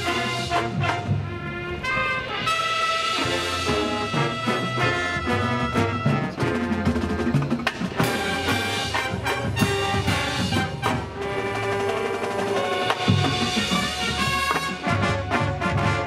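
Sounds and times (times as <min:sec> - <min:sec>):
brass holding chords: 0:00.0 - 0:16.0
drums: 0:00.0 - 0:16.0
percussion striking: 0:07.3 - 0:11.0.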